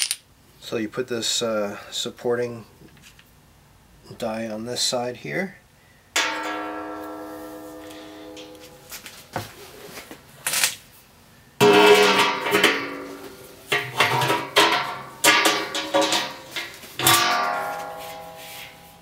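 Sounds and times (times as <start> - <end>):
acoustic guitar strummed chords: 6.2 - 9.4, 11.6 - 19.0.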